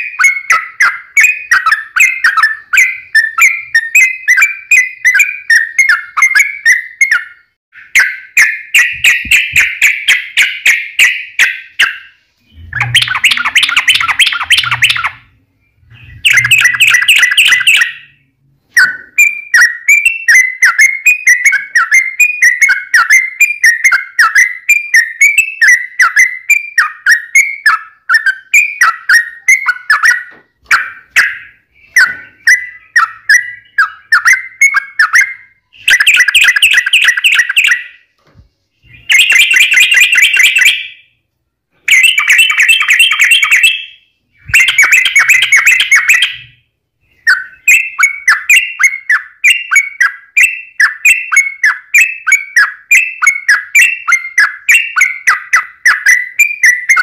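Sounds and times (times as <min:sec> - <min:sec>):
bird singing chirping notes: 0:00.0 - 0:57.0
bird rapid chatter: 0:07.9 - 0:15.2, 0:38.9 - 0:40.9, 0:41.9 - 0:46.5.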